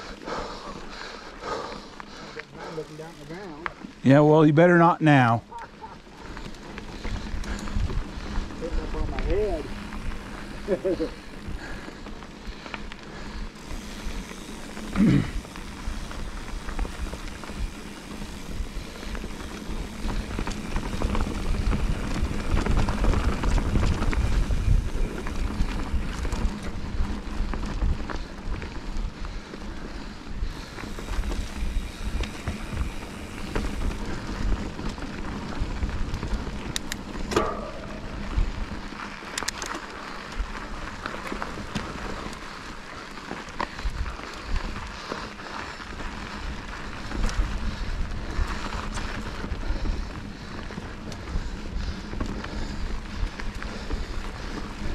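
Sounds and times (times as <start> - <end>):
crackling rustling noise: 0.0 - 4.5, 5.1 - 54.9
wind buffeting microphone: 5.8 - 39.6.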